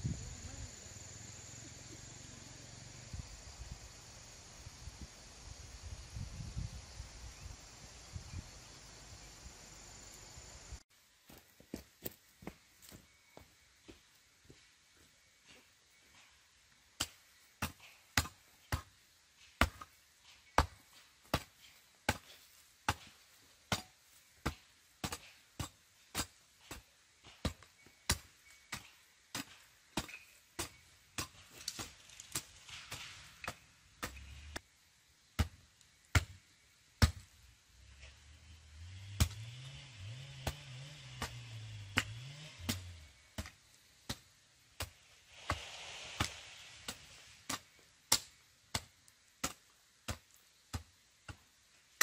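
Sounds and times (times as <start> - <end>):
chopping with hand tool: 20.5 - 34.6, 39.1 - 51.5.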